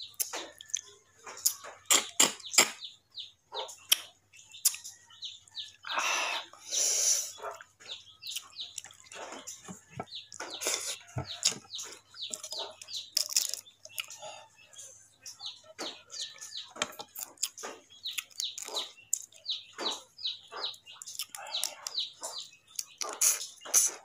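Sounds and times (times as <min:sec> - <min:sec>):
sucking and lip smacks: 0:01.4 - 0:02.8, 0:22.8 - 0:24.0
crab shell cracking: 0:13.2 - 0:13.6.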